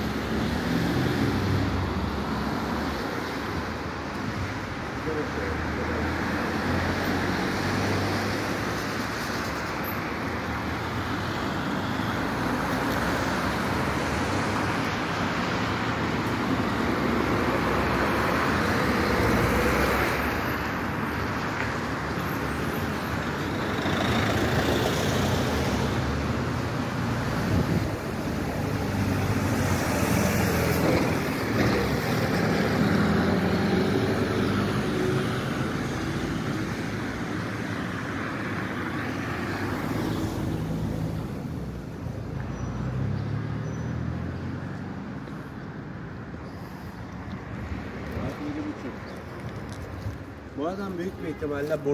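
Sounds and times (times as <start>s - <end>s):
road traffic passing: 0.0s - 51.9s.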